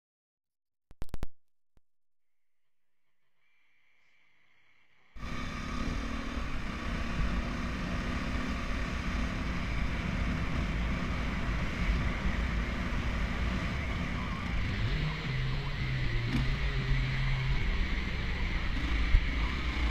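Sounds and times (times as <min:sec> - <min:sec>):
dirt bike engine running: 0:05.2 - 0:19.9.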